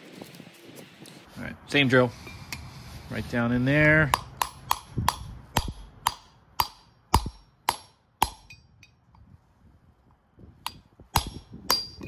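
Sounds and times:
hammer striking metal: 0:04.1 - 0:09.0, 0:10.6 - 0:12.0.

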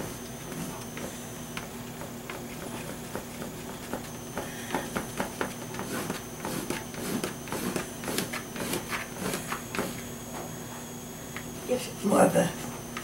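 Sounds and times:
oil pastel scratching: 0:05.7 - 0:10.0.

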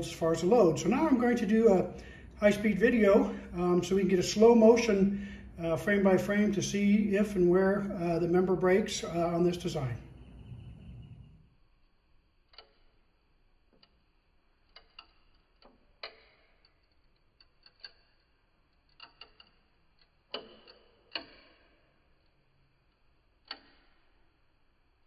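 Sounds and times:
wooden model bridge cracking: 0:20.3 - 0:21.8.

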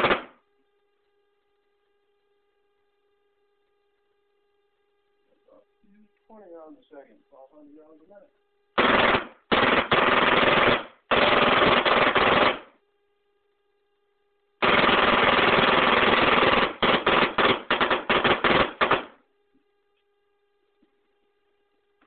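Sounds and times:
paintball marker firing bursts: 0:00.0 - 0:00.4, 0:08.8 - 0:12.8, 0:14.6 - 0:19.2.

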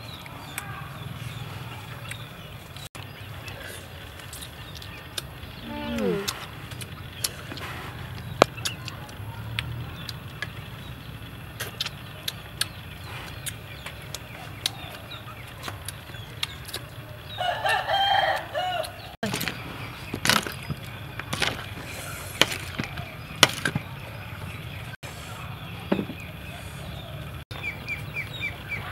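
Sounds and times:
rooster crowing: 0:17.4 - 0:19.2.

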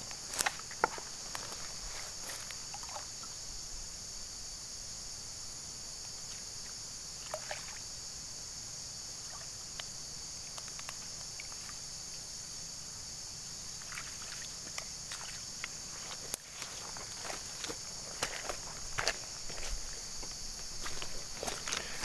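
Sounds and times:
rustles and taps in grass: 0:00.0 - 0:03.0, 0:09.7 - 0:11.8, 0:14.0 - 0:21.9
high-pitched insect chorus: 0:00.0 - 0:22.0.

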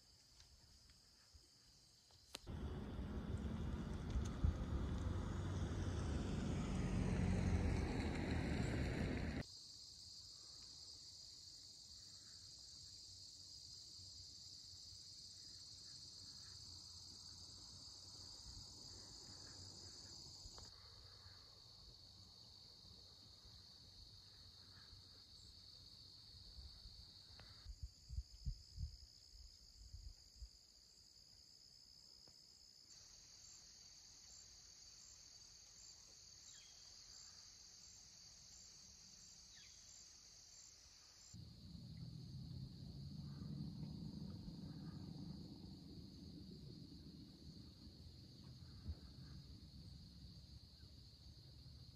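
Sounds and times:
crickets singing: 0:01.1 - 0:51.9
loud low noise: 0:02.5 - 0:09.4.

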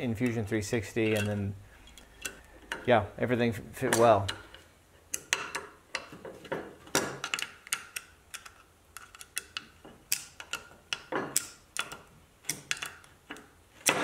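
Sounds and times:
hex key clicking on metal bolts: 0:03.8 - 0:06.2, 0:06.9 - 0:14.0.

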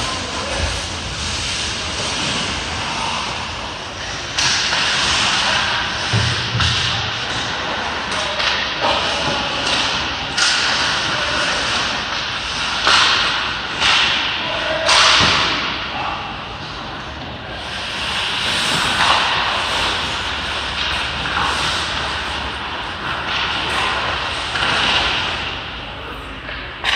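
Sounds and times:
hockey sticks and puck clacking: 0:00.0 - 0:26.9
skate blades scraping ice: 0:17.5 - 0:25.6.

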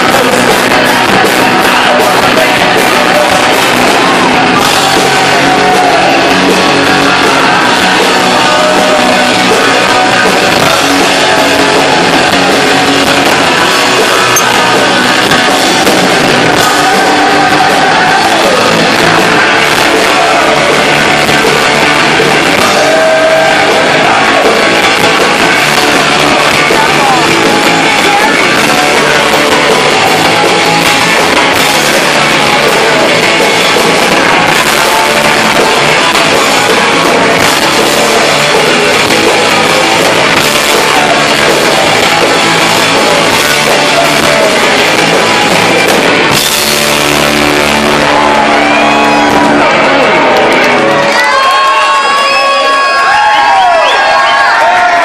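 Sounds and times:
punk rock band playing: 0:00.0 - 0:55.0.

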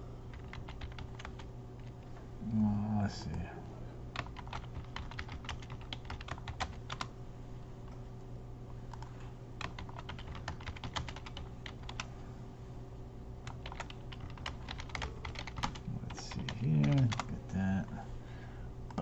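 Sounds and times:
steady low hum: 0:00.0 - 0:19.0
typing on computer keyboard: 0:00.3 - 0:01.5, 0:04.2 - 0:07.1, 0:09.0 - 0:12.1, 0:13.4 - 0:17.3.

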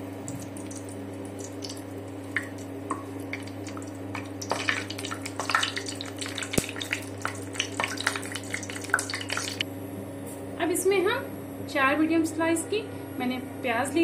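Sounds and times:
spices crackling in hot oil: 0:00.0 - 0:09.7
oil popping: 0:00.2 - 0:09.6.

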